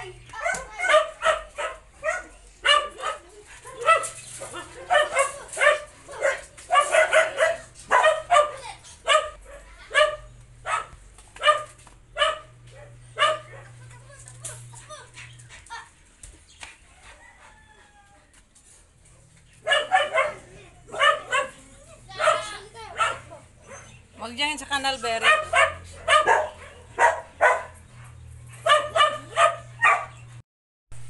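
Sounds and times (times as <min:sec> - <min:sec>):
dog barking and yipping: 0:00.4 - 0:13.9, 0:19.6 - 0:24.0, 0:25.0 - 0:30.3.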